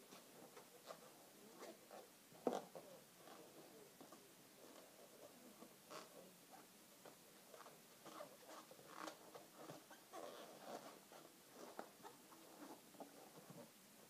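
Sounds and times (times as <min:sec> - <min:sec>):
balloons rubbing and squeaking: 0:07.5 - 0:13.4.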